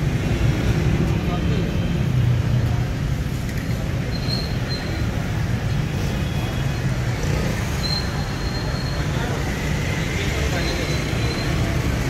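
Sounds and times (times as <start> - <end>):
market bustle: 0.0 - 12.0
street traffic rumble: 0.0 - 12.0.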